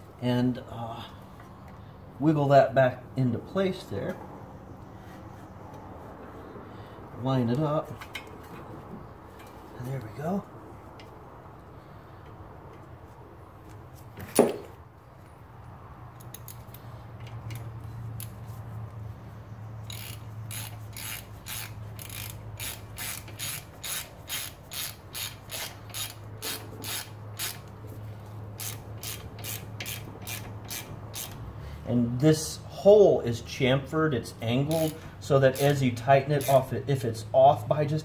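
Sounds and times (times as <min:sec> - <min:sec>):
hand ratchet clicking: 0:19.8 - 0:27.8, 0:28.6 - 0:31.4, 0:34.6 - 0:36.7.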